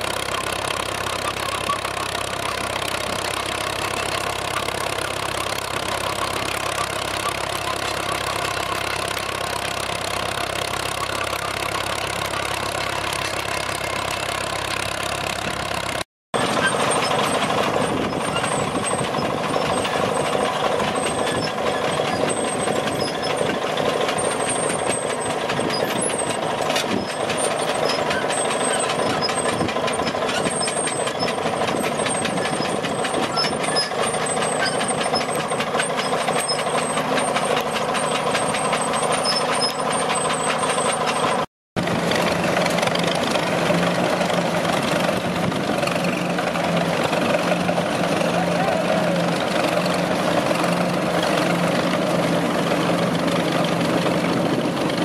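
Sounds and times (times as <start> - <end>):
crawler tractor engine under load: 0.0 - 55.0
tractor engine low hum: 0.0 - 55.0.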